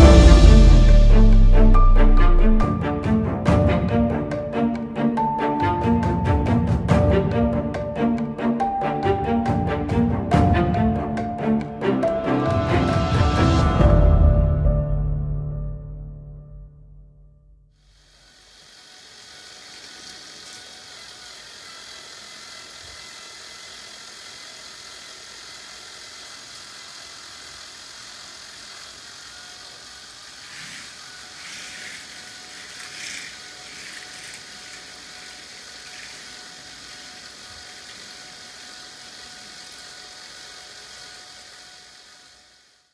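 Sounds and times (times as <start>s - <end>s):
small electric motors whirring: 0.0s - 12.7s, 17.8s - 42.9s
toy train rattling on track: 17.9s - 42.9s.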